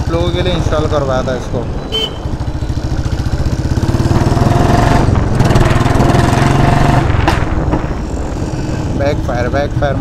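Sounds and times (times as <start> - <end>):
motorcycle engine running loud: 1.9 - 10.0
exhaust crack: 3.8 - 9.1.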